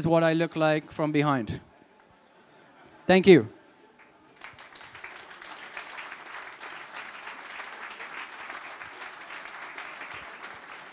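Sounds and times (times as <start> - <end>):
audience applauding: 4.0 - 10.9.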